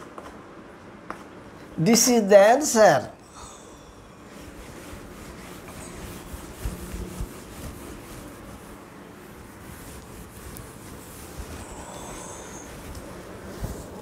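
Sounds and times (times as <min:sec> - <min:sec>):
duster rubbing on blackboard: 0:04.2 - 0:14.0.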